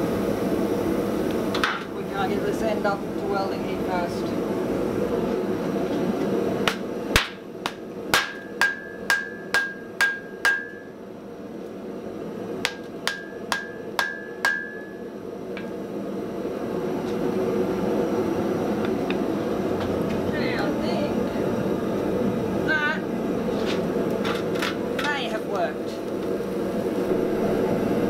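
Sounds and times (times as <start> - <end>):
steady forge roar: 0.0 - 28.0
hammer striking steel on anvil: 6.7 - 11.0, 12.6 - 15.0.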